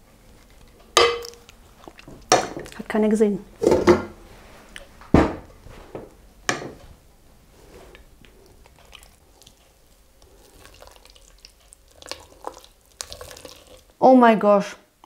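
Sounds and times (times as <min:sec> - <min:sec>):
soft wet squelching: 0:00.2 - 0:03.0, 0:07.5 - 0:14.0.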